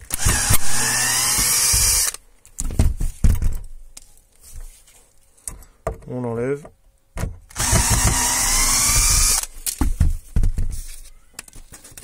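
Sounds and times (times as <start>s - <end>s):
cordless drill motor running: 0.1s - 2.2s, 7.5s - 9.5s.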